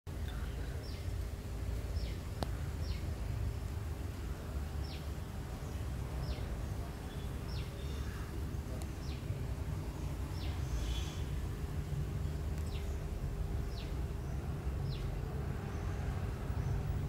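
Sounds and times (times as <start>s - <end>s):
bird chirping: 0.7s - 1.1s, 1.9s - 3.6s, 4.8s - 9.4s, 10.0s - 11.4s, 12.2s - 17.0s.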